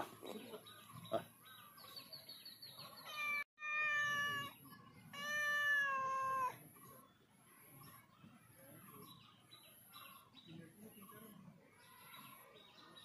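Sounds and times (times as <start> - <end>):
cat meowing: 3.1 - 6.6.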